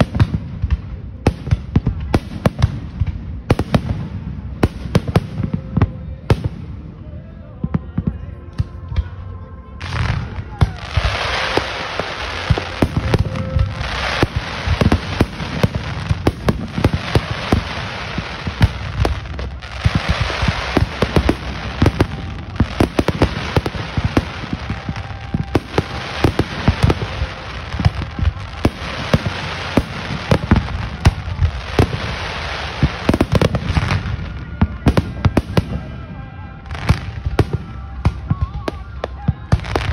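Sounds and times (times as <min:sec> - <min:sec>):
fireworks bangs and pops: 0:00.0 - 0:06.7, 0:09.8 - 0:36.0, 0:36.7 - 0:39.9
fireworks crackling hiss: 0:09.8 - 0:39.9.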